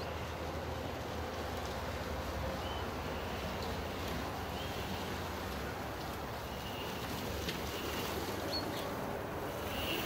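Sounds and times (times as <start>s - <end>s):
low outdoor rumble and hiss: 0.0s - 10.0s.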